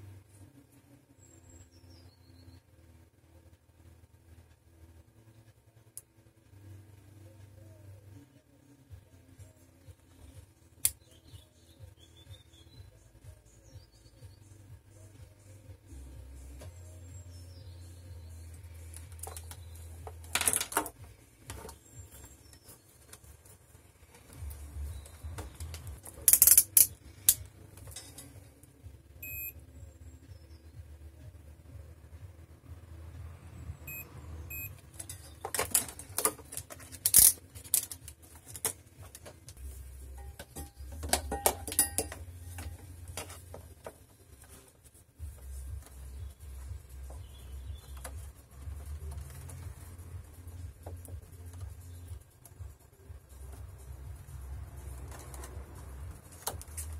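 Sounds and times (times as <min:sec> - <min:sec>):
steady low hum: 0:00.0 - 0:56.9
cables clattering on desk: 0:19.0 - 0:22.3, 0:40.2 - 0:44.0
short electronic beeps: 0:29.2 - 0:29.6, 0:33.9 - 0:34.8
plastic clicks of cables: 0:35.0 - 0:39.6.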